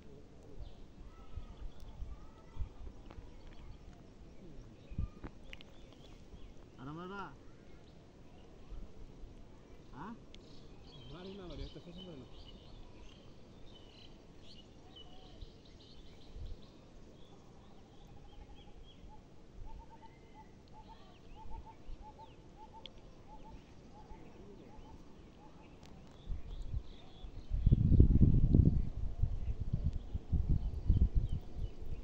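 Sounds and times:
birds chirping and calling: 10.0s - 27.8s
short repeated bird calls: 18.2s - 26.2s.

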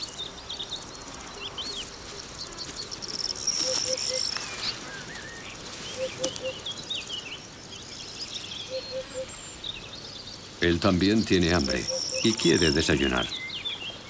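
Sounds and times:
small birds chirping: 0.0s - 14.0s
hoopoe hooting: 5.9s - 6.6s, 11.6s - 13.1s.

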